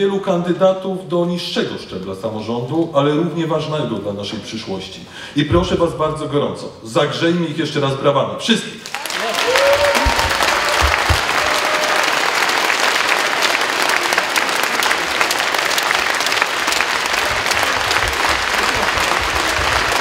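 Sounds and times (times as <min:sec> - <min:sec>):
crowd applauding: 0:08.8 - 0:20.0.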